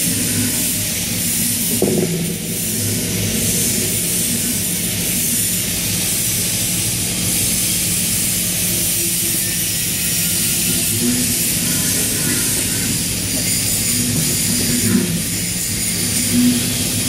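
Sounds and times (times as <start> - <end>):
exhaust fan rushing: 0.0 - 17.0
low hum: 1.7 - 6.7.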